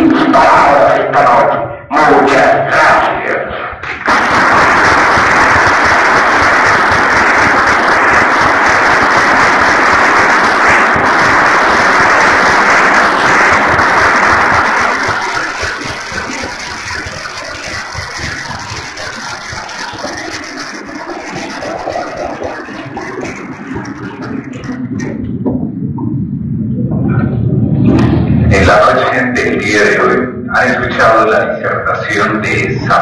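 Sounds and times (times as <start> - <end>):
audience applauding and cheering: 3.8 - 25.3, 28.1 - 31.2.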